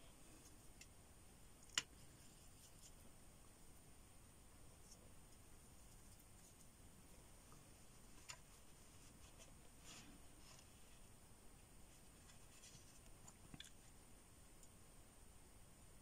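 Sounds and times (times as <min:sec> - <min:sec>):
brush stroking across paper: 0:04.8 - 0:11.2.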